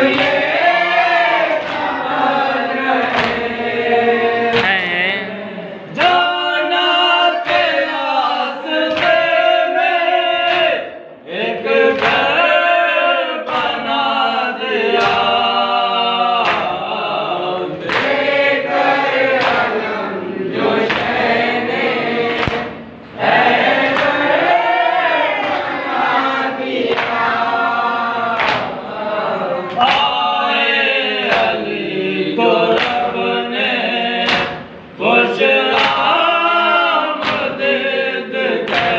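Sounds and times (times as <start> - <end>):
men chanting in unison: 0.0 - 38.9.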